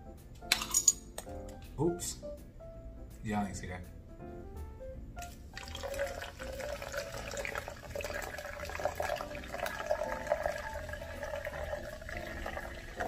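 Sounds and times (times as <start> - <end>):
sparkling water pouring into cup: 5.3 - 13.0.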